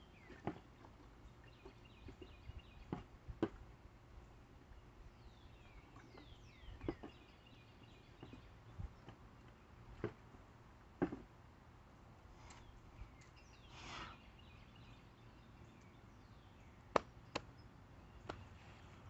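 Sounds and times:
faint knocks on wooden post: 11.0 - 11.3
short scraping swish: 13.7 - 14.2.

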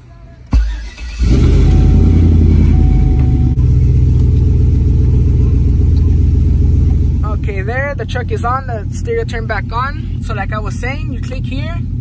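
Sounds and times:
pickup engine starting and idling: 0.5 - 12.0.

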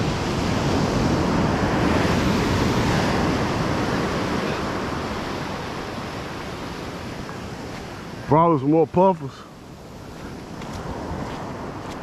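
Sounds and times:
ocean surf washing up a beach: 0.0 - 12.0.

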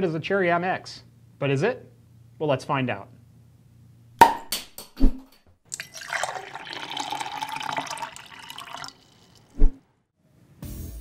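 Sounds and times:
drink poured into a glass: 5.7 - 9.6.

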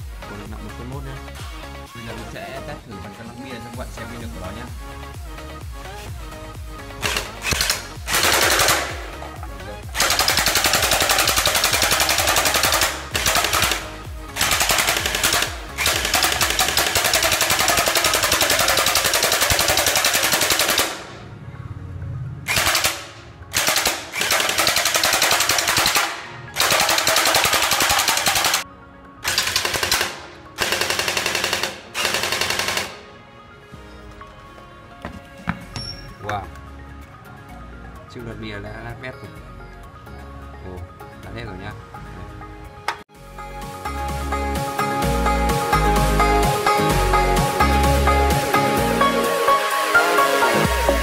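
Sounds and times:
toy blaster firing full-auto: 7.0 - 9.1, 10.0 - 13.8, 14.4 - 21.1, 22.5 - 28.6, 29.2 - 33.0.

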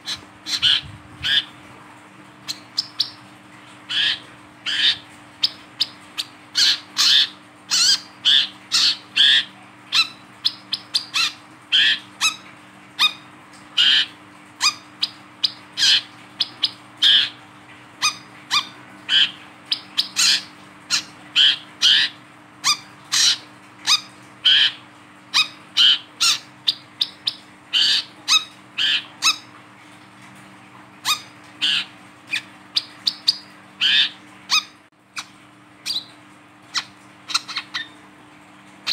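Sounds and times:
sunbird chirping: 2.5 - 3.2.

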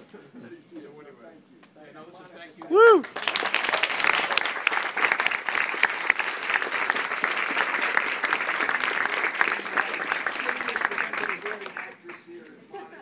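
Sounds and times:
crowd applauding: 2.6 - 12.4.

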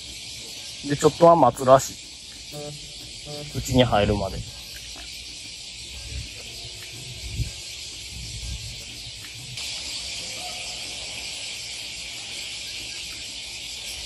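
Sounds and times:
insects chorus: 0.0 - 14.0.

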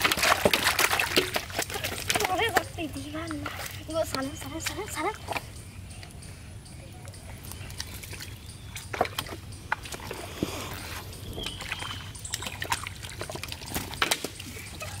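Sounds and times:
fish slapping in metal basin: 0.0 - 5.4, 11.4 - 15.0.

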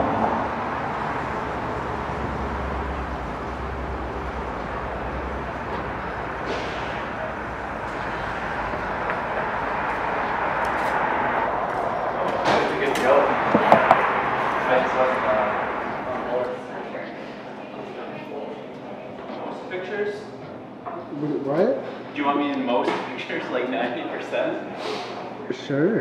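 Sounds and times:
road traffic rushing: 0.0 - 18.2
low hum: 0.0 - 18.3.

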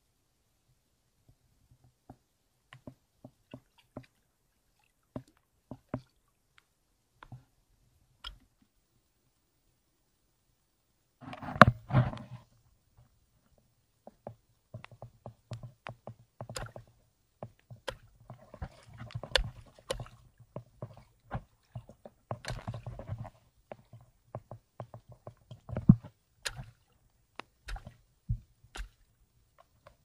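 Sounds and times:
seawater splashing and sloshing: 17.7 - 30.0.

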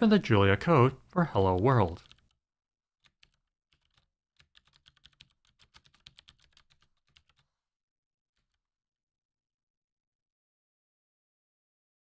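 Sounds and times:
computer keyboard typing: 1.4 - 2.4, 3.0 - 7.6.

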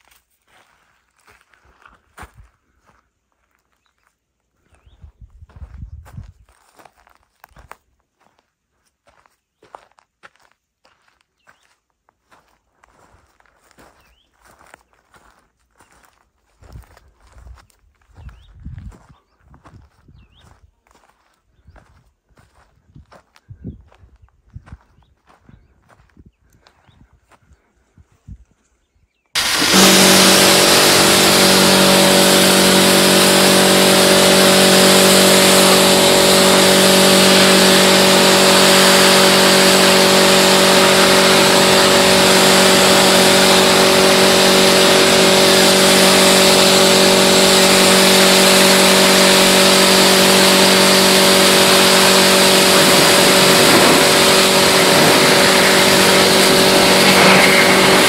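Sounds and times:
cleaning machine motor hum: 29.4 - 58.0.

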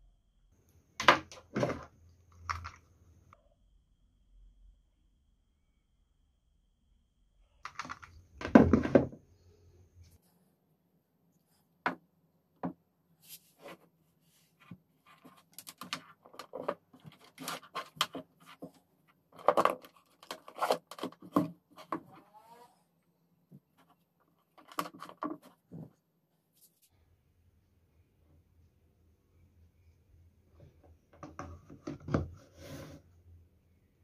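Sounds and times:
faint low hum: 0.0 - 19.1, 25.7 - 34.0
knock on wooden table: 8.4 - 9.2
plastic clicks and knocks: 31.1 - 32.3.

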